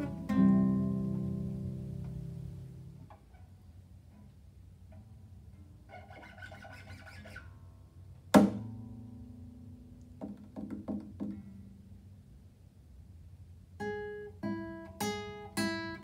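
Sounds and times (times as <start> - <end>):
classical guitar playing: 0.0 - 3.1, 13.8 - 16.0.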